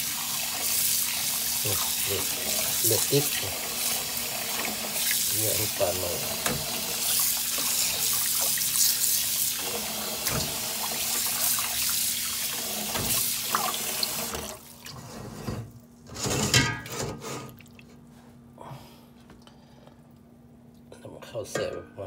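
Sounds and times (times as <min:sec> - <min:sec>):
rinsing fish by hand: 0:00.0 - 0:15.2
tap running into pot of water: 0:12.8 - 0:14.6.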